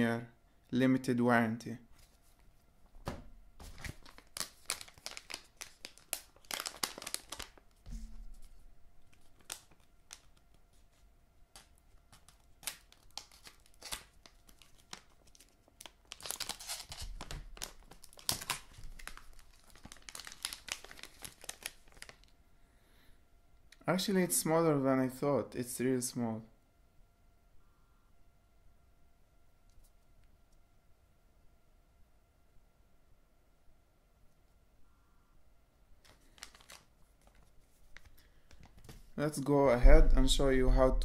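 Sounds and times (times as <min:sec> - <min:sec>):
paper packet crinkling: 0:03.6 - 0:22.3, 0:36.0 - 0:39.1.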